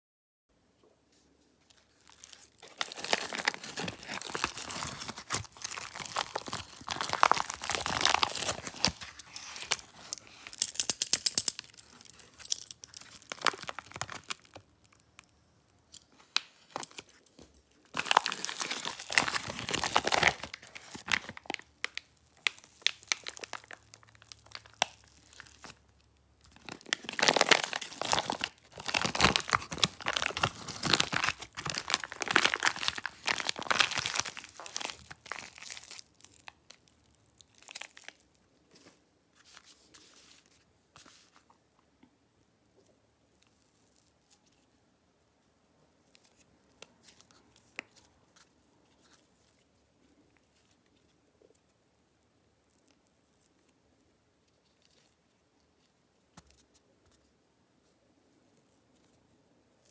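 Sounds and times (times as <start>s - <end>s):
foil packet crinkling and tearing: 1.6s - 40.0s.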